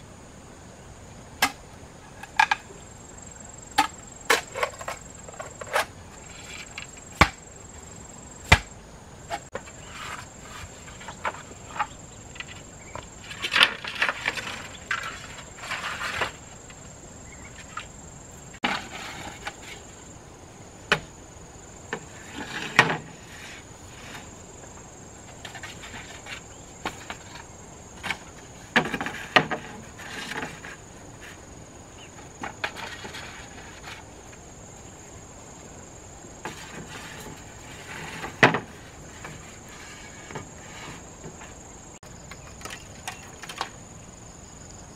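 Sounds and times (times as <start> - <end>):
machete splitting bamboo: 1.4 - 1.6, 7.2 - 7.4, 8.5 - 8.7
bamboo poles knocking and scraping: 1.4 - 2.8, 3.7 - 7.4, 8.4 - 20.0, 20.9 - 21.1, 21.9 - 34.4, 36.4 - 43.8.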